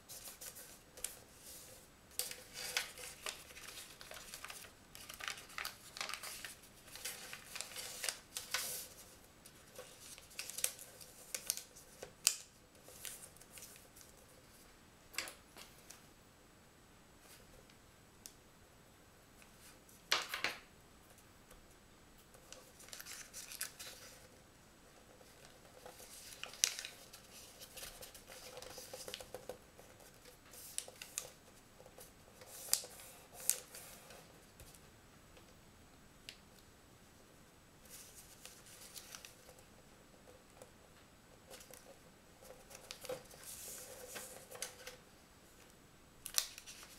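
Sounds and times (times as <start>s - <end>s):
paper being folded and creased: 0.1s - 14.1s, 22.4s - 24.3s, 25.3s - 29.4s, 30.0s - 31.4s, 32.3s - 34.2s, 37.9s - 39.5s, 41.5s - 45.0s, 46.2s - 46.9s.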